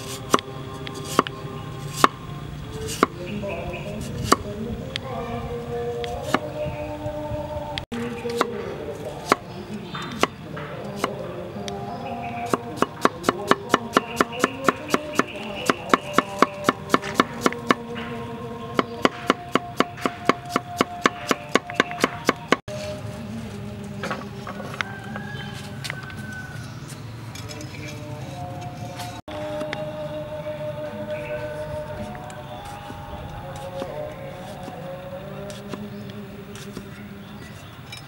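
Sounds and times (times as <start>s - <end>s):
cleaver chopping on wooden board: 1.9s - 2.2s, 12.4s - 17.8s, 18.8s - 22.6s.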